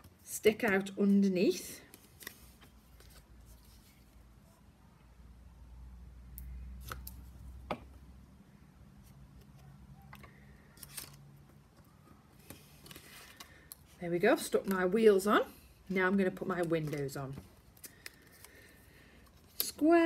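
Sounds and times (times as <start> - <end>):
paper card handling: 10.7 - 11.3, 12.4 - 13.9, 16.5 - 19.8.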